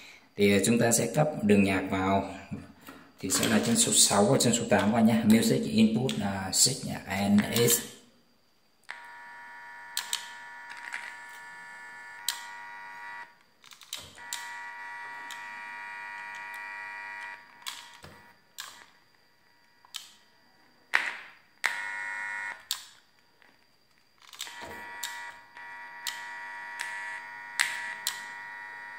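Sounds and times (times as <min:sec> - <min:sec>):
speaker buzzing: 0:08.9 - 0:13.4, 0:14.1 - 0:18.4, 0:21.6 - 0:22.7, 0:24.4 - 0:28.9
sharp clicks: 0:10.0 - 0:11.1.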